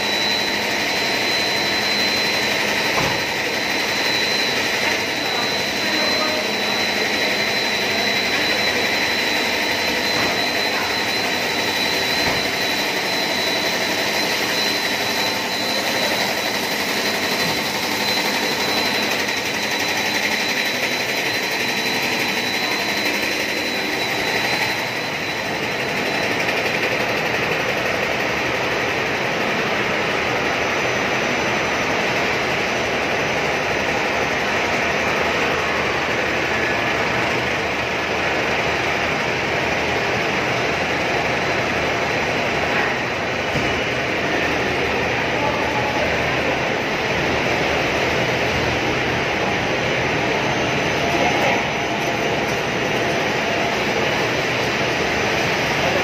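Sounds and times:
factory machinery running: 0.0 - 56.0
thin high whine: 0.0 - 56.0.

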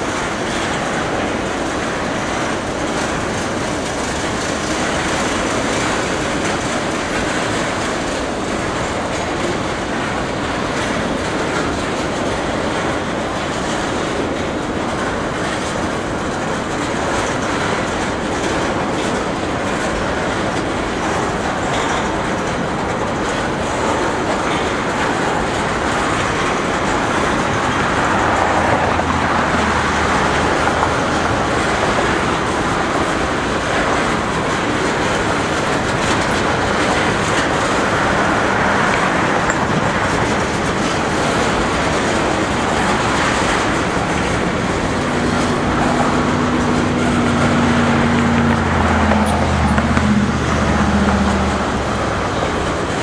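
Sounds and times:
freight train cars rolling past: 0.0 - 53.0.

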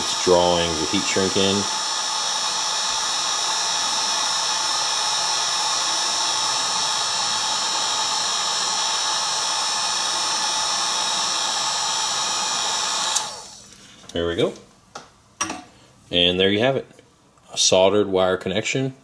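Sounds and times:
heat gun blowing with whine: 0.0 - 13.9.

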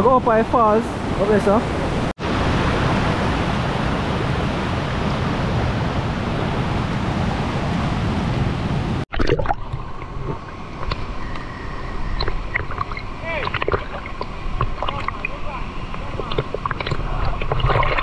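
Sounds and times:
river water rushing: 0.0 - 9.0
water splashing from swimming: 12.2 - 18.0.

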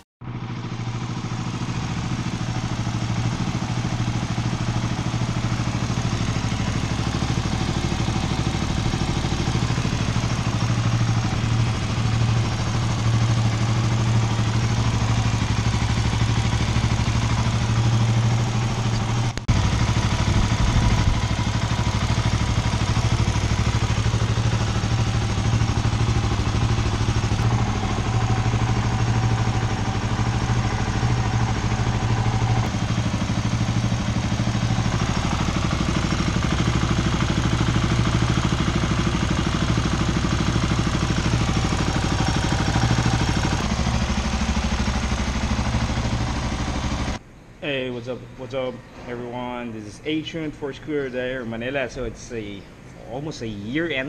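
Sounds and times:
motorcycle engine idling: 0.2 - 47.8
click: 18.9 - 19.4.

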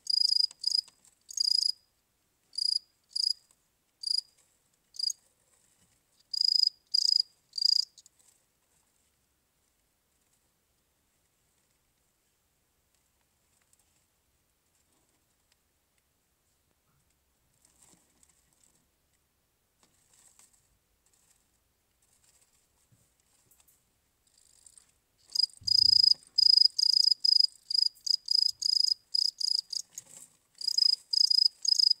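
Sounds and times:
cricket chirping: 0.0 - 1.8, 2.6 - 3.4, 4.0 - 4.3, 5.0 - 5.2, 6.3 - 8.1, 24.3 - 30.0, 30.6 - 32.0.

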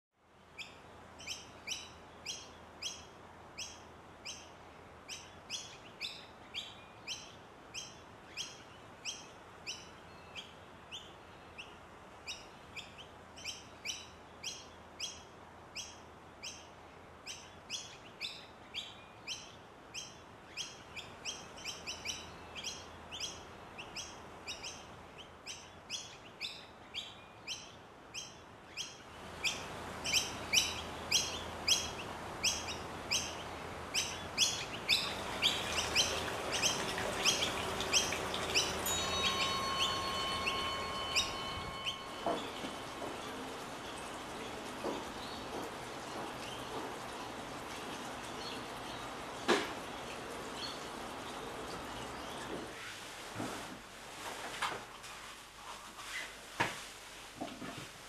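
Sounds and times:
steady background hiss: 0.2 - 58.0
bird chirping: 0.6 - 46.8.

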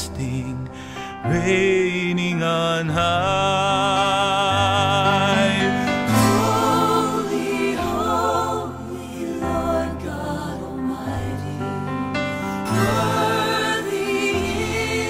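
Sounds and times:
person singing with vibrato: 0.1 - 10.2.

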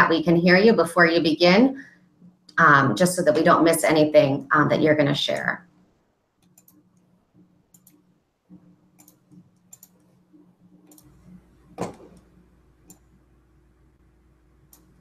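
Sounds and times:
faint steady hum: 0.0 - 15.0
mouse and keyboard clicks: 6.4 - 6.8, 9.0 - 10.1.

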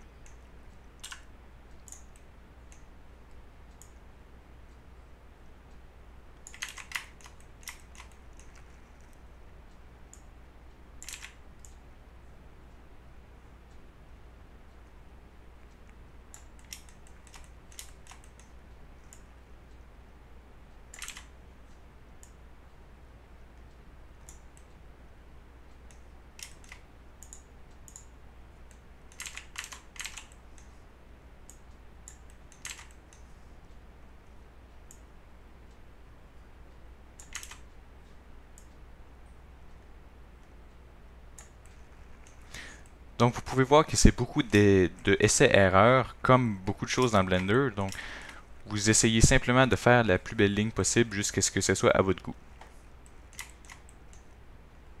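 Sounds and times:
low steady hum: 0.0 - 55.0
computer mouse clicks: 0.2 - 4.0, 6.4 - 10.3, 11.0 - 11.8, 15.6 - 19.8, 20.8 - 22.4, 23.6 - 24.8, 25.7 - 30.8, 31.4 - 33.8, 37.2 - 37.7, 38.6 - 38.8, 41.4 - 43.0, 52.6 - 54.4
keyboard clicks: 1.0 - 2.8, 6.4 - 9.2, 11.0 - 11.8, 15.8 - 19.3, 20.9 - 21.4, 25.9 - 28.1, 28.7 - 30.7, 31.5 - 33.2, 37.2 - 37.7, 52.2 - 54.3.

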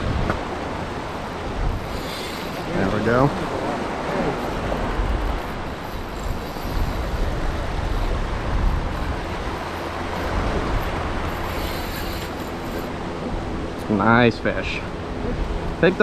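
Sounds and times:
sea wash: 0.0 - 16.0
wind buffeting microphone: 0.0 - 16.0.

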